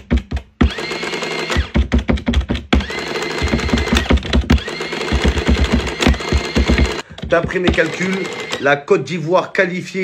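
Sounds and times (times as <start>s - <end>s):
print mechanism clattering: 2.8s - 8.7s.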